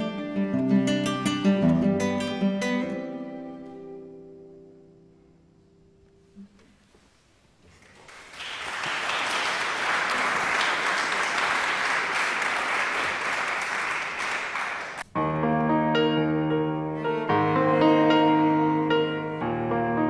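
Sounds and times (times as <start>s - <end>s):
piano music: 0.0s - 5.2s, 15.0s - 20.0s
audience applauding: 7.8s - 15.1s.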